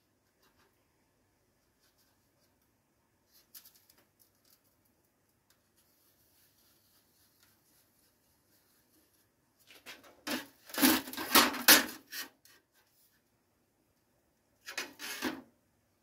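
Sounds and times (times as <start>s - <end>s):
scraping on sheet steel: 9.9s - 12.6s, 14.6s - 15.5s.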